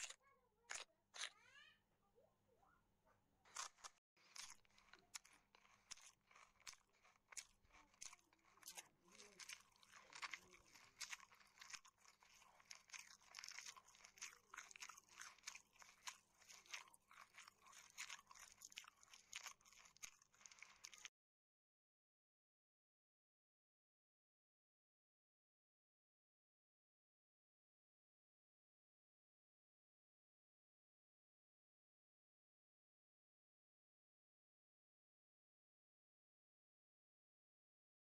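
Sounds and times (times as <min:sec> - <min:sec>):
person chewing crunchy food: 0:00.0 - 0:01.4, 0:03.5 - 0:21.1.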